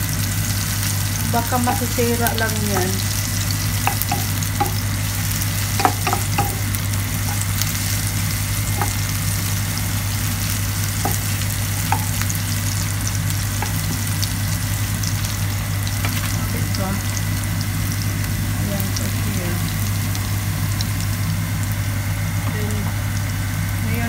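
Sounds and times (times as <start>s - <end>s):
low steady hum: 0.0s - 24.0s
vegetables sizzling in hot oil: 0.0s - 24.0s
spatula tapping pan: 3.8s - 4.8s, 5.7s - 7.5s, 11.0s - 12.3s, 13.5s - 14.0s.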